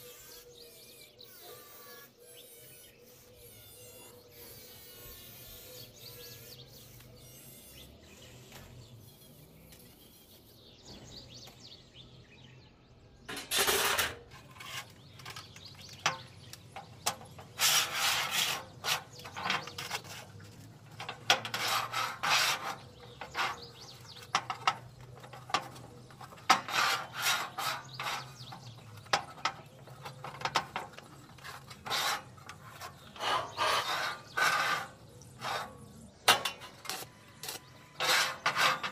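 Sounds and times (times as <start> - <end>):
hand tool scraping iron: 13.3 - 38.9.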